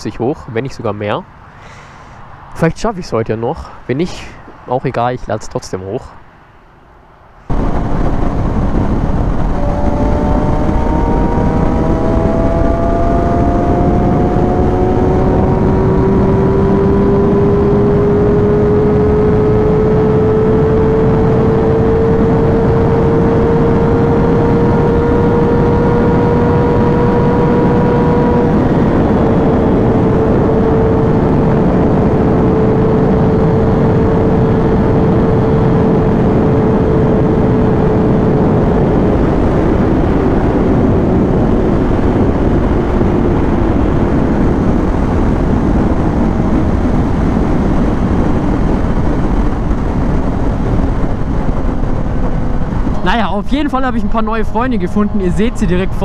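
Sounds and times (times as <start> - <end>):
wind rushing: 0.0 - 56.0
motorcycle engine at high revs: 8.6 - 53.0.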